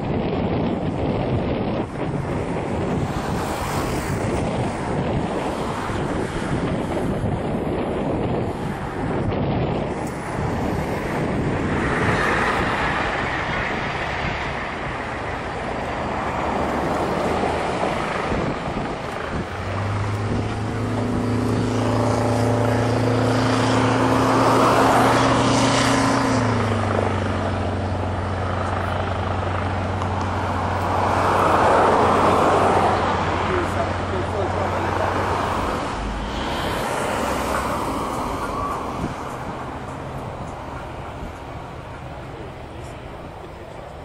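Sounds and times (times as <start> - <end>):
distant vehicle rumble: 0.0 - 44.0
fire truck engine hum: 0.0 - 44.0
wind noise on microphone: 0.0 - 44.0.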